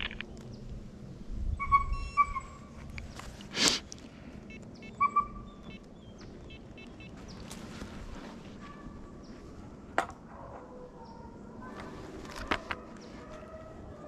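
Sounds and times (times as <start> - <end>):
rustling noise: 7.1 - 9.6, 11.7 - 13.5.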